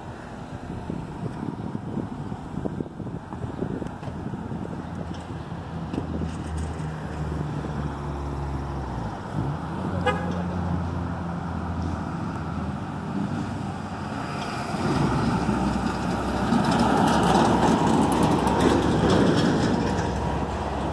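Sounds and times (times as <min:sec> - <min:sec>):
road traffic passing: 0:00.0 - 0:20.9
truck engine passing: 0:05.3 - 0:20.9.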